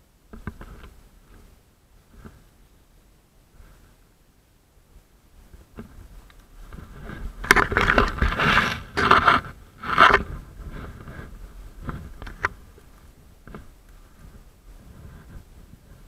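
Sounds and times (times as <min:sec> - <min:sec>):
brush scraping and rustling: 0:05.4 - 0:16.0.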